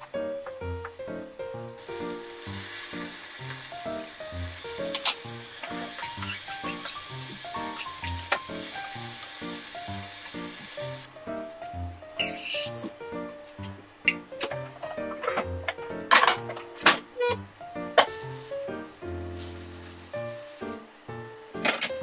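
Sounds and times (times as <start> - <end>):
food sizzling in a frying pan: 1.8 - 11.1, 12.2 - 13.0, 18.0 - 20.8.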